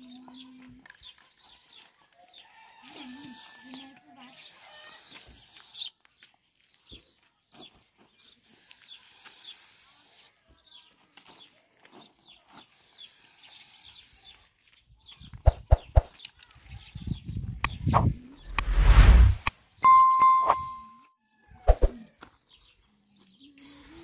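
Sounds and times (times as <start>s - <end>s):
spray paint can hissing: 2.9s - 3.8s, 4.4s - 5.9s, 8.4s - 10.3s, 12.6s - 14.4s, 23.6s - 24.0s.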